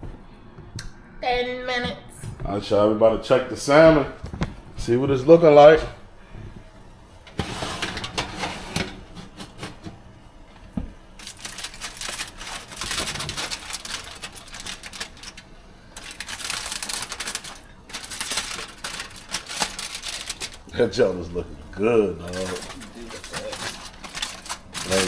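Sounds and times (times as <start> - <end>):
aluminium foil crinkling: 11.1 - 25.0.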